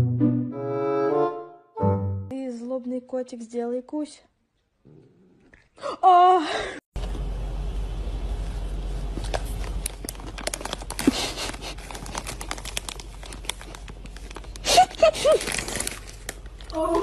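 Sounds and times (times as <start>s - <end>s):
low hum: 7.0s - 11.0s
plastic packet crinkling: 9.2s - 16.8s.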